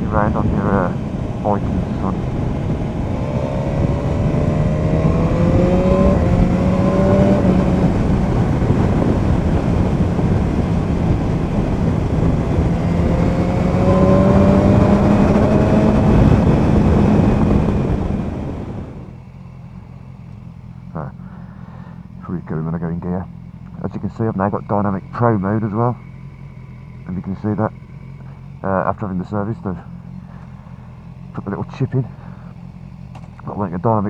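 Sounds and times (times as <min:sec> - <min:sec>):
wind rush on microphone: 0:00.0 - 0:19.2
motorcycle engine accelerating: 0:00.0 - 0:34.0.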